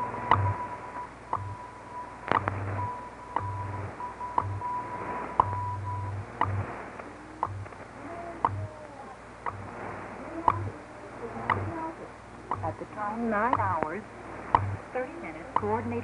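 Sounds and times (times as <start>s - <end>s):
faint wavering whistles: 0.0s - 6.2s
sharp time signal ticks: 0.0s - 6.7s, 7.4s - 7.8s, 8.4s - 8.6s, 9.4s - 9.7s, 10.4s - 10.7s, 11.4s - 11.7s, 12.4s - 16.0s
low buzzing pulses: 0.0s - 16.0s
static hiss: 0.0s - 16.0s
steady tone: 0.0s - 16.0s.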